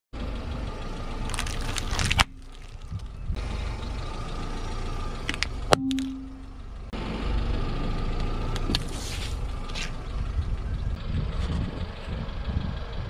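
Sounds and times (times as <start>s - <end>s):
car engine rumble: 0.1s - 13.0s
tyre crunching plastic packets: 1.2s - 3.1s
packets bursting with crack: 1.3s - 3.0s.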